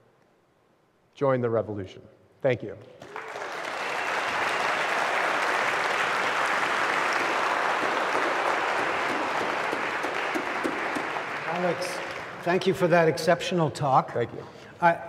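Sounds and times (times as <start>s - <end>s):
audience applauding: 3.0s - 12.8s.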